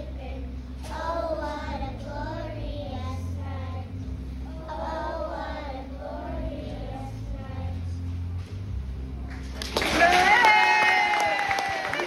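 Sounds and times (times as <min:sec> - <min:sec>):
children singing together: 0:00.0 - 0:08.0
instrumental accompaniment with bass: 0:00.0 - 0:10.6.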